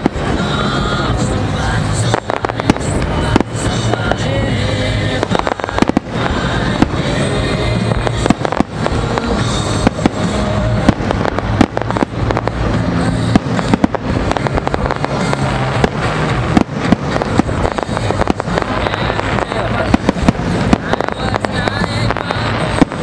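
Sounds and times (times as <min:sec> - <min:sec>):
music playing: 0:00.0 - 0:23.0
firework shells bursting: 0:05.1 - 0:23.0.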